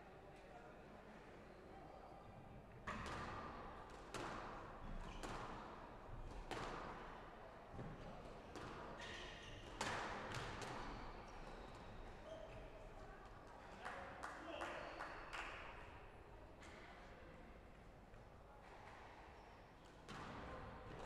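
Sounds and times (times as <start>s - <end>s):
squash ball hitting rackets and walls: 4.1s - 5.6s, 6.3s - 7.0s, 8.6s - 8.8s.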